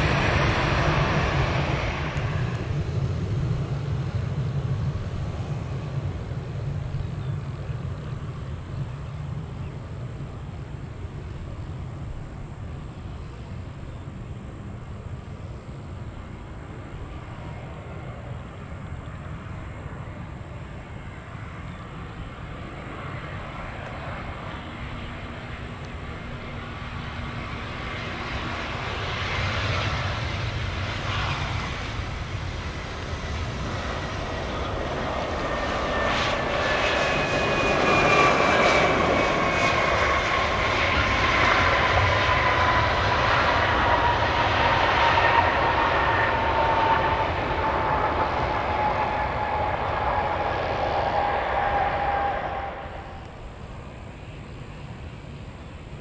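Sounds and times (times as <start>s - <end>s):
jet airliner engines: 0.0s - 56.0s
high engine whine sliding down: 32.8s - 55.8s.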